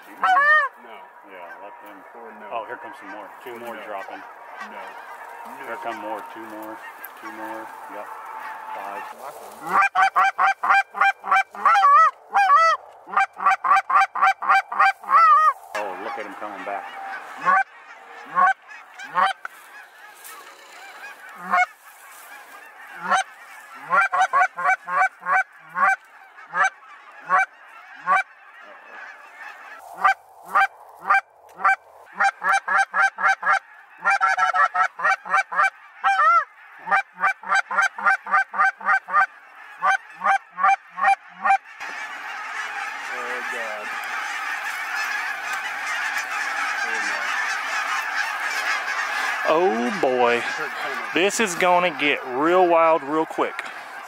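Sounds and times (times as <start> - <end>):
flock of geese honking: 0.0 - 54.0
goose call clucks and honks: 0.0 - 54.0.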